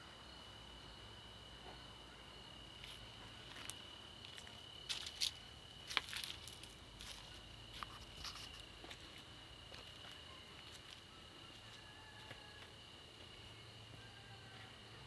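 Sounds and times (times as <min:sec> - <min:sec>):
high insect drone: 0:00.0 - 0:15.0
footsteps on dry leaves: 0:02.8 - 0:11.0.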